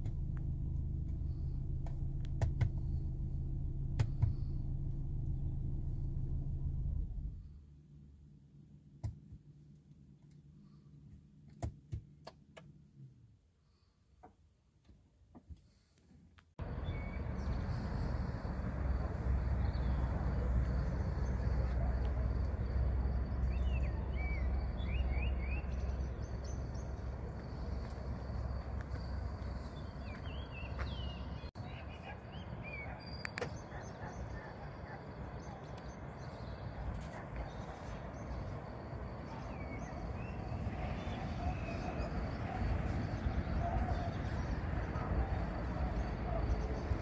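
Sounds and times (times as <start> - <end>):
low rumble outdoors: 0.0 - 11.6, 16.6 - 47.0
faint hum: 16.6 - 31.9
birds chirping: 16.6 - 47.0.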